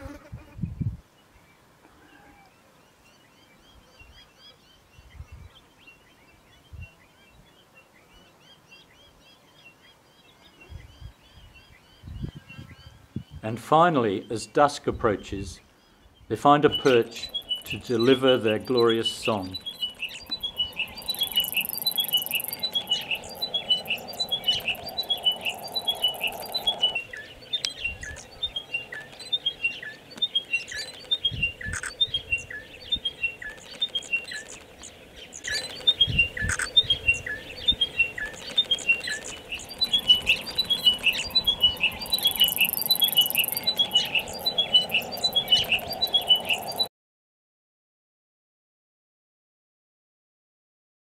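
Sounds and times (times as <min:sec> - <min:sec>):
bird singing descending notes: 0:16.6 - 0:34.4, 0:35.2 - 0:46.9.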